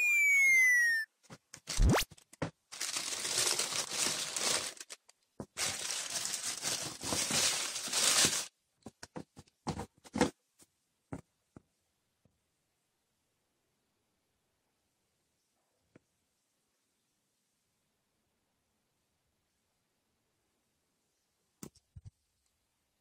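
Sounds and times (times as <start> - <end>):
falling electronic tone: 0.0 - 1.1
tissue paper crinkling: 2.7 - 8.5.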